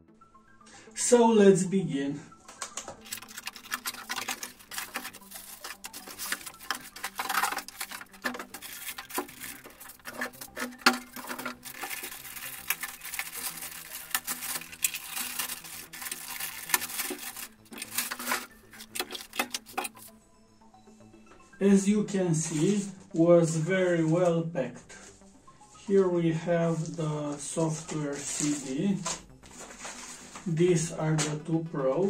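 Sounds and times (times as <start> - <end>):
plastic packaging crinkling: 2.7 - 20.1
cardboard box handling: 3.0 - 20.1.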